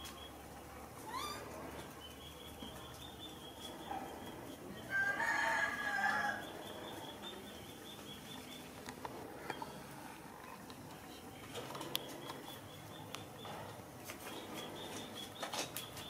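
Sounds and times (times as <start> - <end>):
rooster crowing: 4.9 - 6.5.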